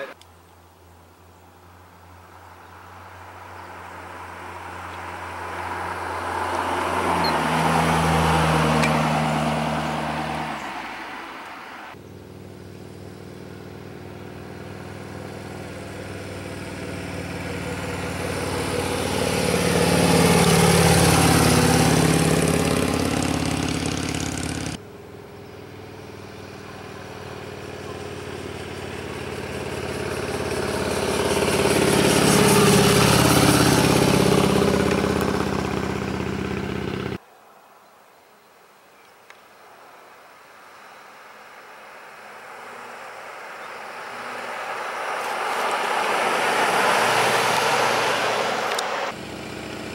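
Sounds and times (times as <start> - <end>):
vehicle passing by: 1.8 - 37.2, 41.5 - 49.9
sports car passing by: 2.0 - 37.2, 41.8 - 49.9
motorcycle passing by: 2.1 - 37.2, 41.8 - 49.9.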